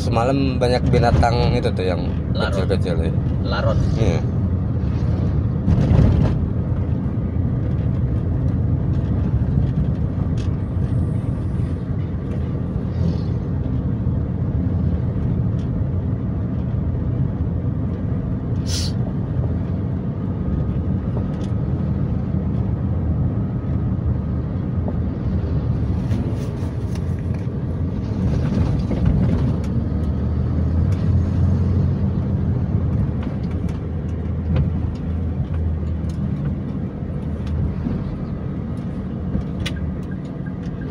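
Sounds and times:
car cabin road rumble: 0.0 - 40.9
short high hiss: 18.6 - 19.0.

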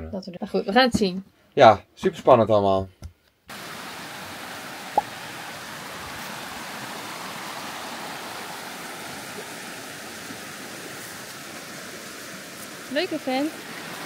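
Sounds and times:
flowing water rushing: 3.5 - 14.0.

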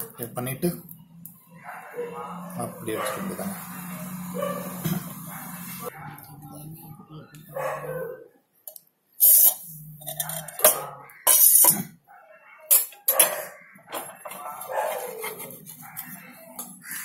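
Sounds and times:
dog barking: 1.5 - 6.3, 7.5 - 8.4, 10.5 - 11.1, 12.0 - 16.3
metal spatula scraping griddle: 14.3 - 17.0.

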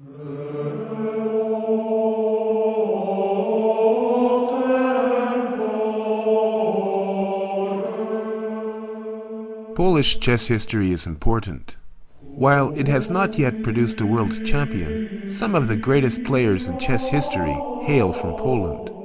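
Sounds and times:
choral chant: 0.0 - 10.3, 12.2 - 19.0.

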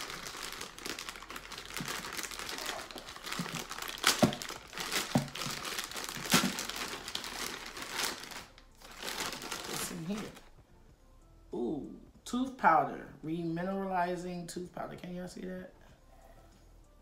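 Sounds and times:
plastic bag crinkling: 0.0 - 10.5.

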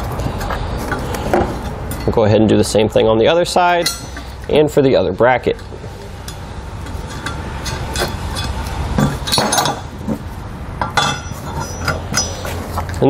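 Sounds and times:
metal hardware clinking: 0.4 - 2.2, 3.7 - 4.6, 5.4 - 10.2, 10.8 - 13.0.

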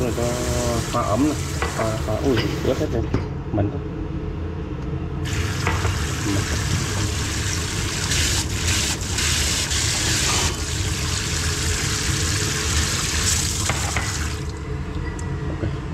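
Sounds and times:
faucet spraying into sink: 0.0 - 2.2, 5.3 - 14.5.

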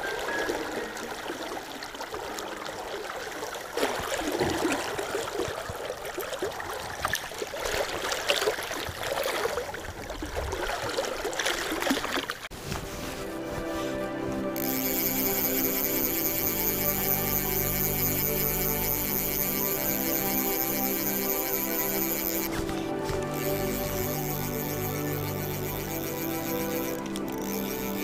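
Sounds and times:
fish thrashing in water: 0.3 - 12.5
music: 12.6 - 28.0.

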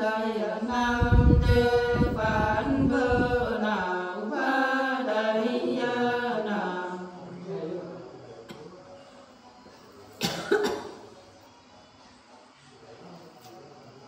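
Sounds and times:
women singing unaccompanied: 0.0 - 7.8.

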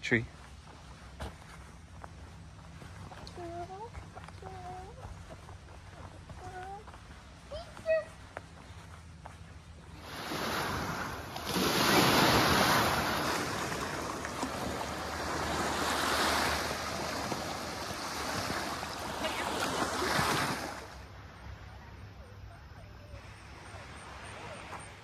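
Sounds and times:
waves washing onto sandy beach: 10.0 - 21.0.

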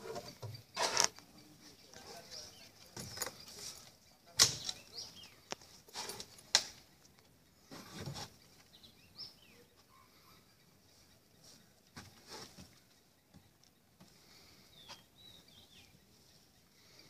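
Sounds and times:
elephant footsteps on wooden planks: 7.7 - 8.9, 11.7 - 14.2.

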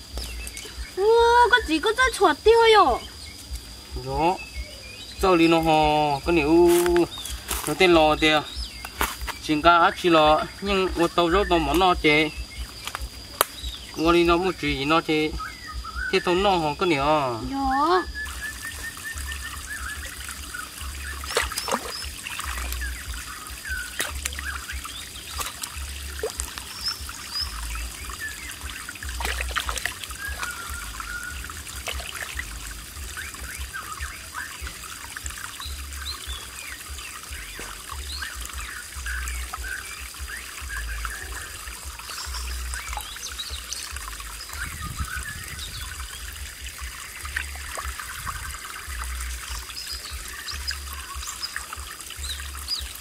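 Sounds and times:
stream trickling over rock: 0.0 - 53.0
small water splashes: 18.2 - 53.0.

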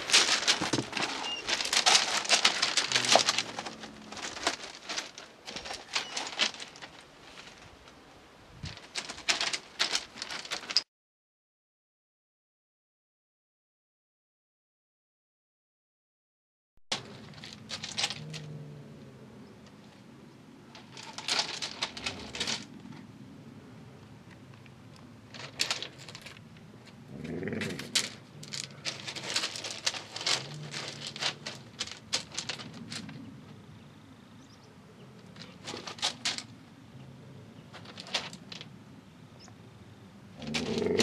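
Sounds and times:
animal low sounds: 0.0 - 6.7, 17.7 - 19.8, 26.9 - 33.2, 40.3 - 41.0
crunching on loose gravel: 0.0 - 10.8, 16.9 - 18.7, 19.6 - 23.2, 24.1 - 36.8, 37.6 - 38.8, 40.4 - 41.0.

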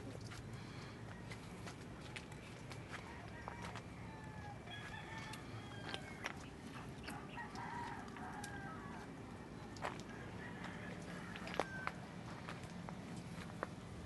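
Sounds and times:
footsteps on stony ground: 0.0 - 13.8
faint rooster crowing: 2.7 - 12.7.

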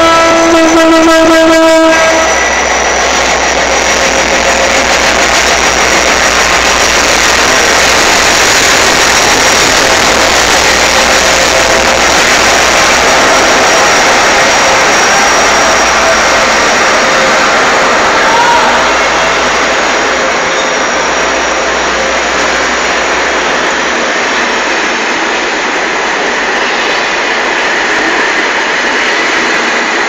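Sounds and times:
locomotive horn: 0.0 - 2.6, 15.1 - 20.6.

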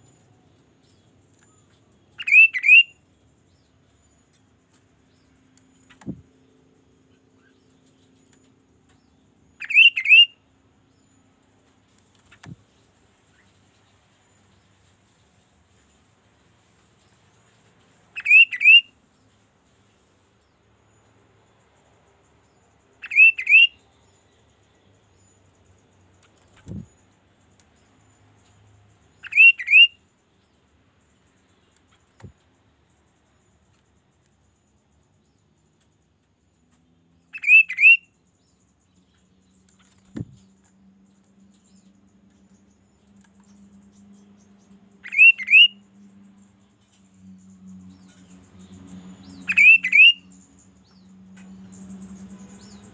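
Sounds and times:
bird swooping whistled call: 2.2 - 2.9, 9.6 - 10.3, 18.2 - 18.9, 29.2 - 29.9, 37.4 - 38.0, 45.1 - 45.7, 49.5 - 50.2
soft thump: 40.1 - 40.4.

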